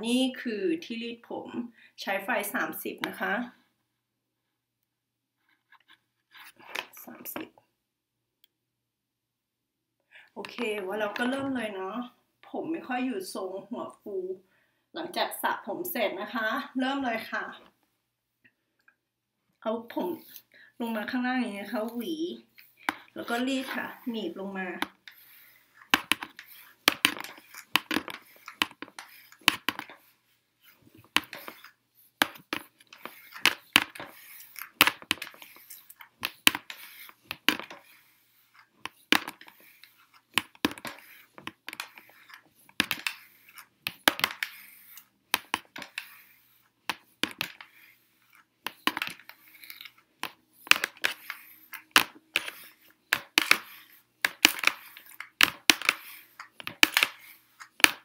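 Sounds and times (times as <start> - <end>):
comb brushing through hair: 20.0 - 58.0.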